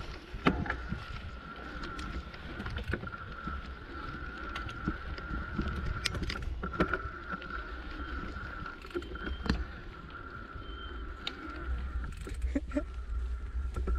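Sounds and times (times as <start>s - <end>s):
bike knocks and rattles: 0.0s - 1.1s
low rumble of tyres and wind: 0.0s - 13.9s
thin steady high tone: 7.8s - 12.1s.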